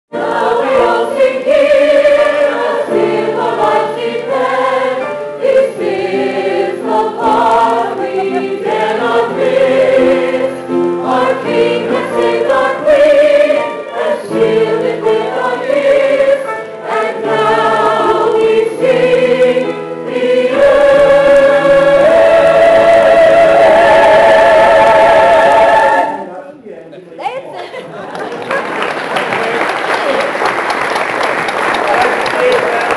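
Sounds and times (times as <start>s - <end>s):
choir singing in harmony: 0.1s - 26.3s.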